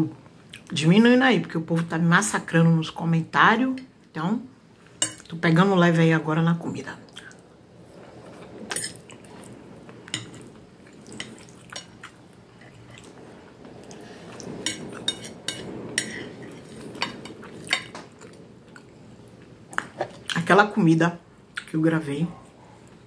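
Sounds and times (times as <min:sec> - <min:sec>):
soft chewing: 0:08.0 - 0:15.1.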